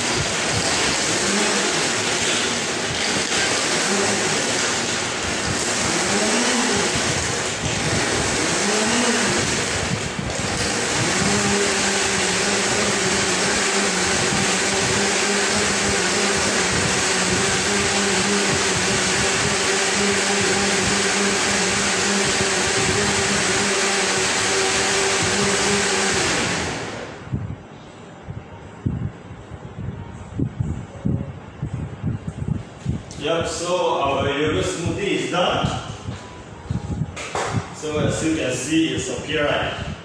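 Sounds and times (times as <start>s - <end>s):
blender crushing ice: 0.0s - 27.2s.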